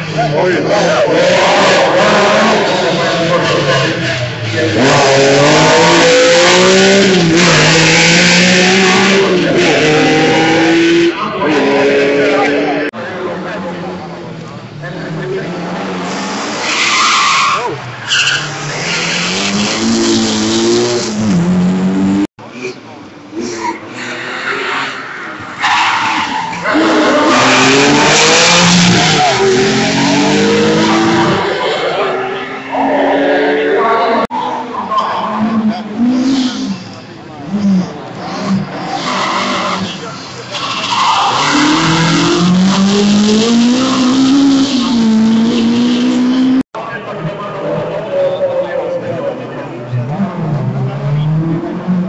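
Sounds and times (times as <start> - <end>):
rally car engine at full throttle: 0.0 - 52.0
car engine accelerating hard: 26.6 - 34.3.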